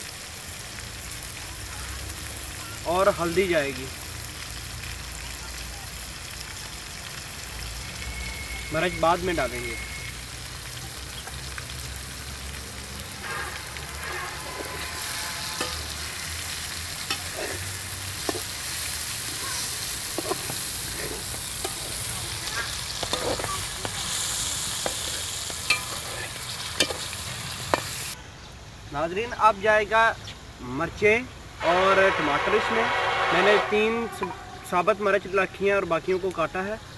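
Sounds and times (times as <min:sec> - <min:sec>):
meat and onions sizzling in oil: 0:00.0 - 0:36.9
metal skimmer scraping a pan: 0:13.0 - 0:27.8, 0:31.8 - 0:35.4.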